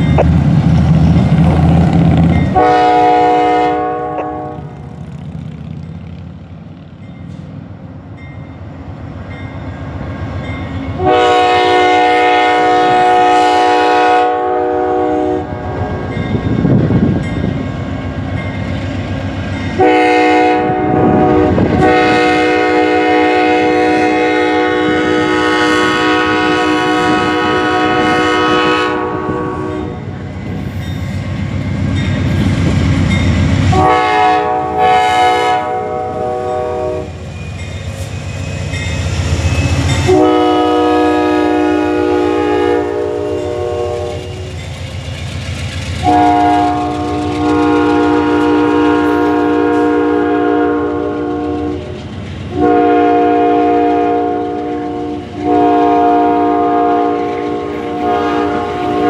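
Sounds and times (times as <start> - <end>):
train rumbling: 0.0 - 59.0
train air horn blasts: 2.5 - 4.8, 10.9 - 16.2, 19.7 - 30.1, 33.7 - 37.2, 39.7 - 44.6, 46.0 - 59.0.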